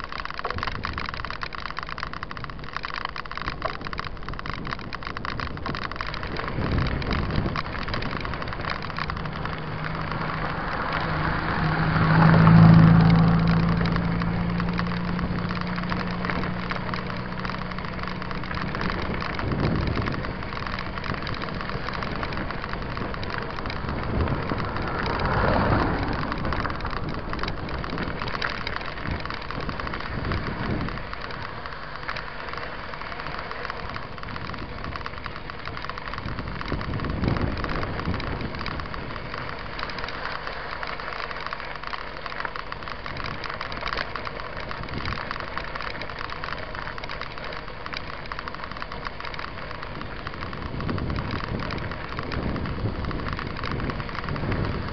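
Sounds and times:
bike tyres crunching on gravel: 0:00.0 - 0:54.9
car driving past: 0:08.8 - 0:16.8.

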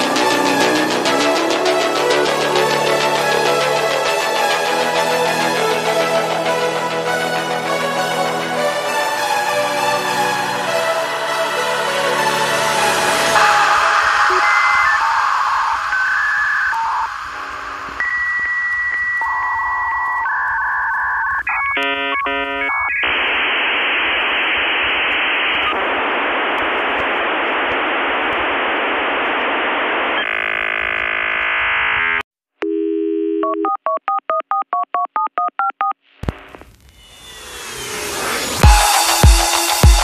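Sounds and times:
modem hiss: 0:13.2 - 0:32.2, 0:36.0 - 0:40.0
rapid alternating beeps: 0:13.4 - 0:23.2
dial tone: 0:16.7 - 0:23.0, 0:32.6 - 0:36.0
touch-tone dialing: 0:32.6 - 0:36.0.

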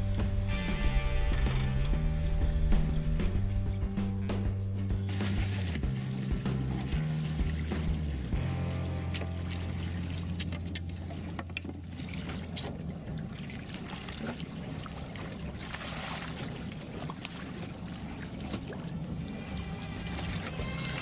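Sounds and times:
water sloshing against boat: 0:04.9 - 0:21.0
sharp splashes: 0:05.0 - 0:21.0.

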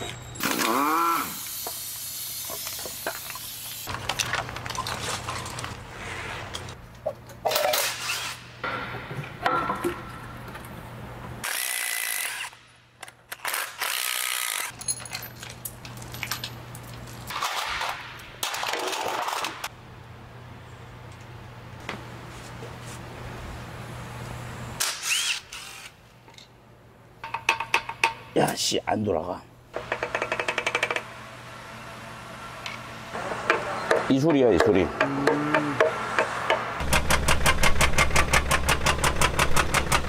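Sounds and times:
metal parts clinking: 0:14.5 - 0:17.4.

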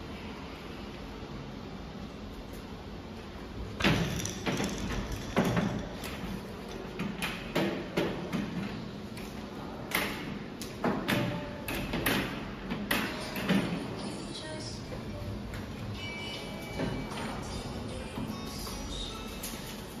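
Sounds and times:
metal knocks and clatters: 0:03.8 - 0:08.8.

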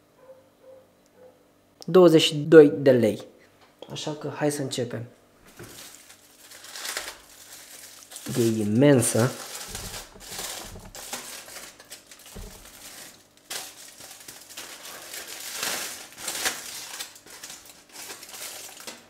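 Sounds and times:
aluminium foil crinkling: 0:05.5 - 0:19.0.

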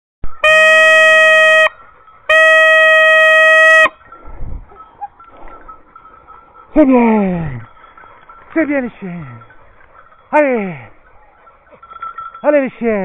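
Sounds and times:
signal horn blasts: 0:00.3 - 0:04.1.

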